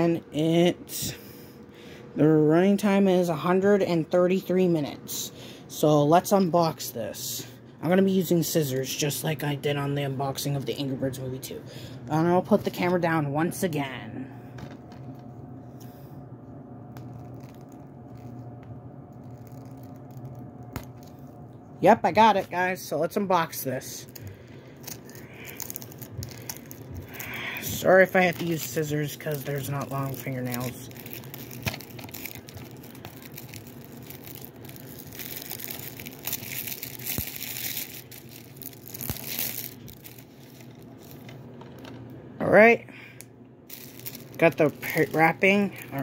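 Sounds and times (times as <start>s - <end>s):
room hum: 0.0s - 46.0s
plastic wrap crinkling and tearing: 17.0s - 21.4s, 24.0s - 42.0s, 43.7s - 46.0s.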